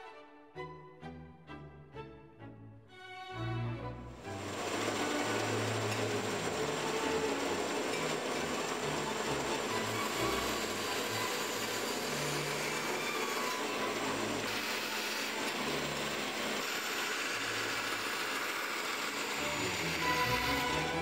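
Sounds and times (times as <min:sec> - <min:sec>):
bandsaw cutting plywood: 0:04.3 - 0:21.0.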